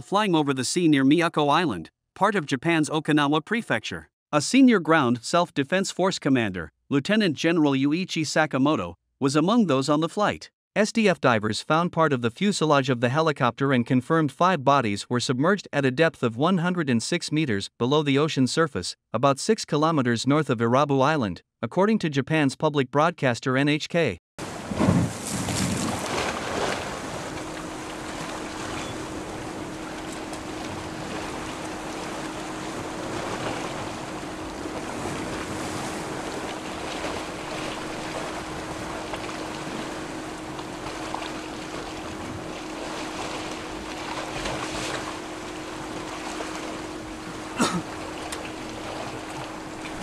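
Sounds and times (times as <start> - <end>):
sea noise: 24.4 - 50.0
steady hum: 24.4 - 50.0
wind: 24.4 - 50.0.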